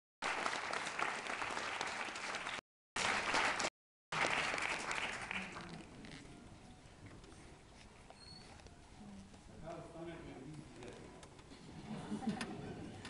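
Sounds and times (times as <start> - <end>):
audience applauding: 0.2 - 5.8.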